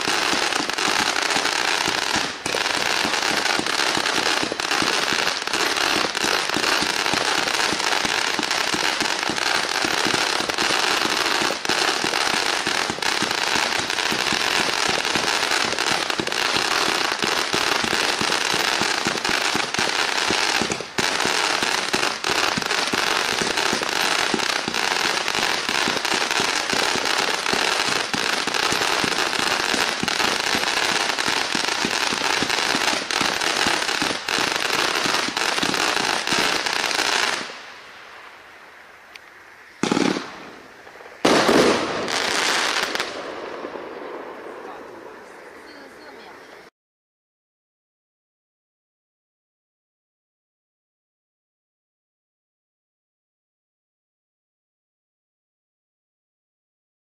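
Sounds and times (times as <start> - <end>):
fireworks rapid shots and crackling: 0.0 - 37.6, 39.8 - 46.6.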